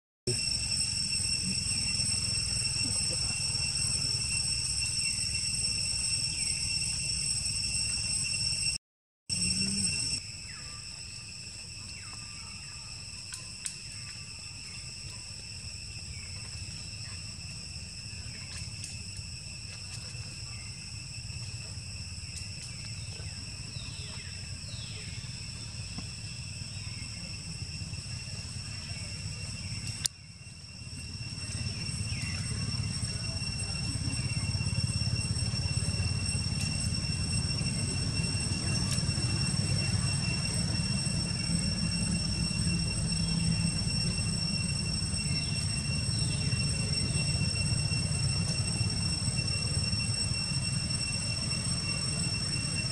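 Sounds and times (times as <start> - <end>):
insects droning: 0.3 - 52.9
click: 13.2 - 14.2, 29.8 - 30.2.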